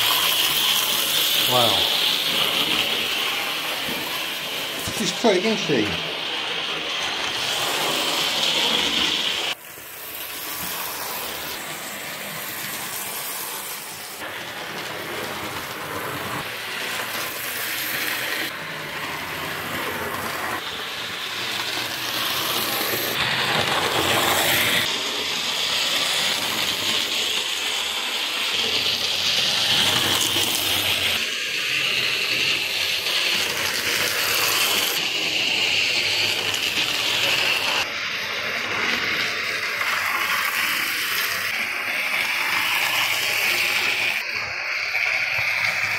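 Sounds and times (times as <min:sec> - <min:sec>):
wheels clicking on rails: 0:06.7 - 0:37.9.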